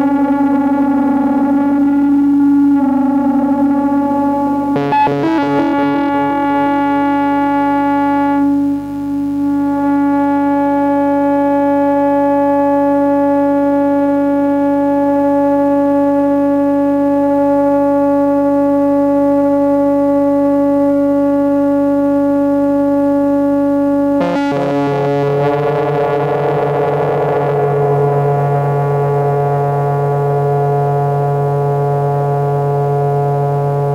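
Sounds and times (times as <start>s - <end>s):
synthesizer drone: 0.0s - 12.8s, 24.2s - 33.9s.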